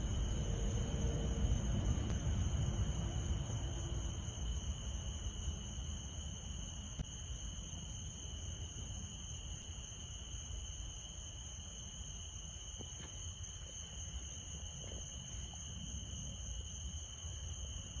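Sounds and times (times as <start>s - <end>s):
low rumble: 0.0s - 5.8s
crickets trilling: 0.0s - 18.0s.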